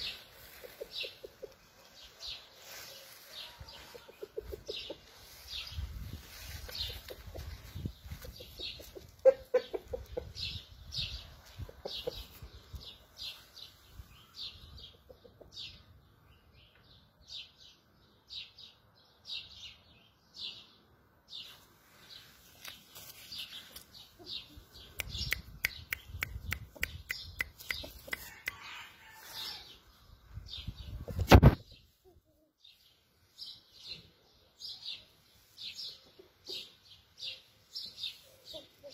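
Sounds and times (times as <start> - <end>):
rooster clucking: 3.7 - 5.2, 6.8 - 10.4.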